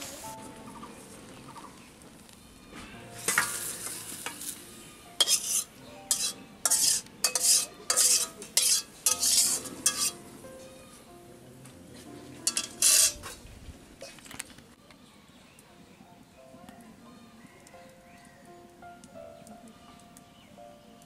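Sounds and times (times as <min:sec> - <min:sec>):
light sizzle: 0:00.0 - 0:14.8
metal spatula scraping a wok: 0:03.2 - 0:04.6, 0:05.2 - 0:10.4, 0:12.4 - 0:13.4.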